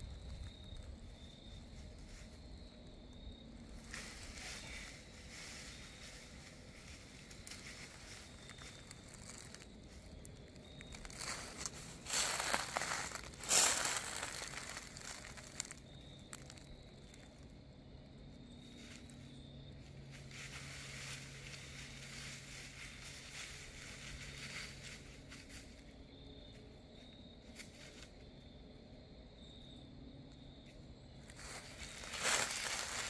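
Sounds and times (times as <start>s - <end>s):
dry leaves crunching underfoot: 0.0s - 17.4s, 20.0s - 25.8s, 31.2s - 33.0s.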